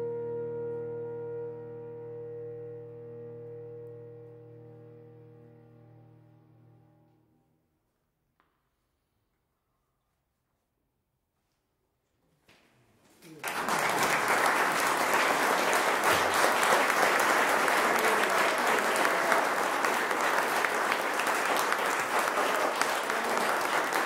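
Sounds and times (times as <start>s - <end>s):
audience applauding: 13.2s - 24.0s.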